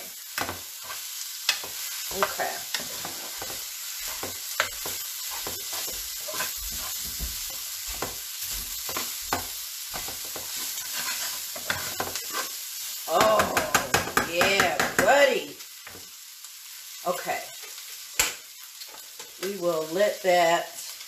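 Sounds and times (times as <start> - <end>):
meat sizzling in a skillet: 0.0 - 21.0
spatula knocking on pan: 1.5 - 12.2, 13.3 - 15.2.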